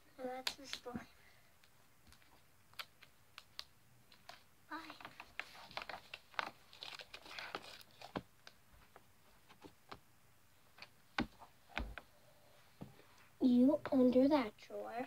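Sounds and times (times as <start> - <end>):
crinkly rustling and clicks: 2.0 - 9.7
dull thumps on wooden floor: 11.2 - 12.0.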